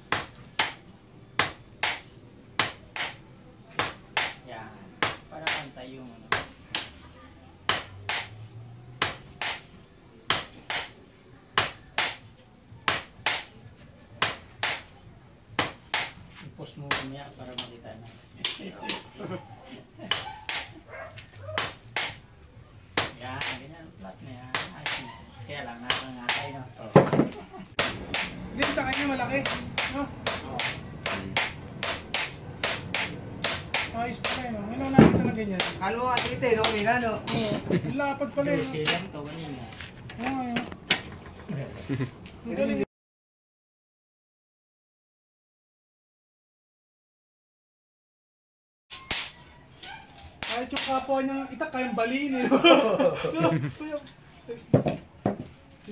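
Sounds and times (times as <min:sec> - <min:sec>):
hammers striking hot steel on anvil: 0:00.0 - 0:04.4, 0:05.0 - 0:07.0, 0:07.7 - 0:08.4, 0:09.0 - 0:09.7, 0:10.3 - 0:11.0, 0:11.6 - 0:12.2, 0:12.9 - 0:13.6, 0:14.2 - 0:14.9, 0:15.6 - 0:16.2, 0:20.1 - 0:20.8, 0:21.6 - 0:22.2, 0:23.0 - 0:23.7, 0:24.5 - 0:25.0, 0:25.8 - 0:26.6, 0:27.8 - 0:37.6, 0:50.4 - 0:51.1.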